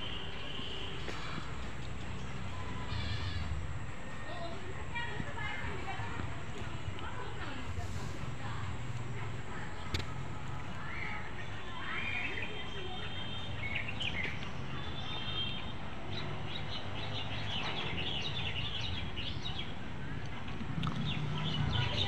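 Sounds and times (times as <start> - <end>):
small birds chirping: 0.1 - 22.0
steady low hum: 0.8 - 11.1.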